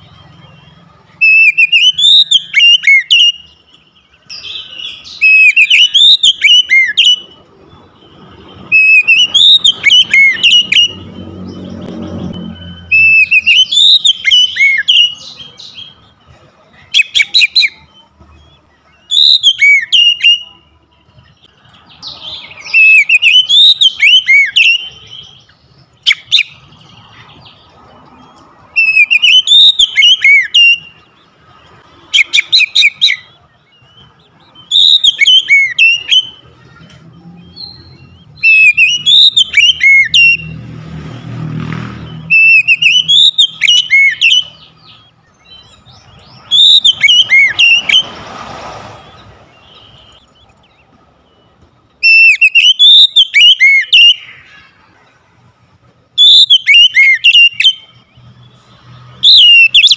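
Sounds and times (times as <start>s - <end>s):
bird singing whistled phrases: 0.5s - 7.4s, 8.7s - 11.6s, 12.4s - 16.0s, 16.9s - 20.6s, 22.0s - 26.6s, 28.8s - 31.1s, 32.1s - 36.5s, 37.2s - 40.6s, 42.0s - 48.1s, 51.3s - 54.6s, 56.2s - 58.2s, 59.2s - 59.9s.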